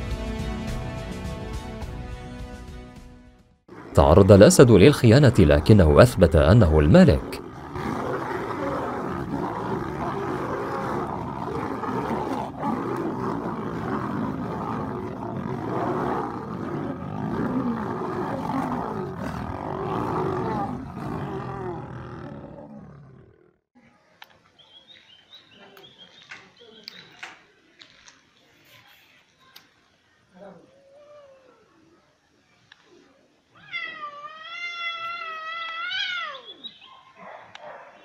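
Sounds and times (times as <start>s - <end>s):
lions growling in a fight: 3.7s - 23.6s.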